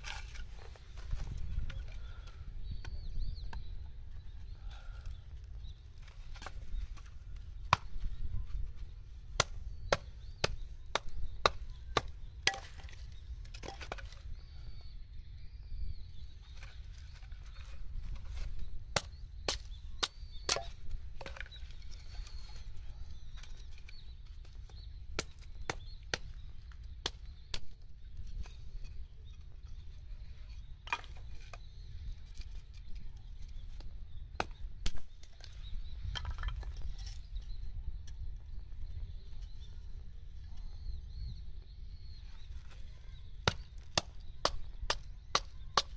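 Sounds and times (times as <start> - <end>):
hatchet chopping wood: 7.6 - 8.1, 9.4 - 13.0, 18.9 - 21.5, 25.2 - 26.4, 27.0 - 27.6, 43.4 - 45.9.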